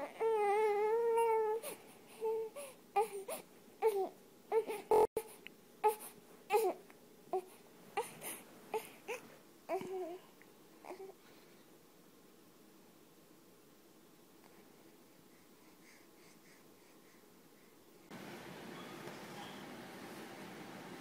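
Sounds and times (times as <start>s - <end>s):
baby crying: 0.0s - 5.1s.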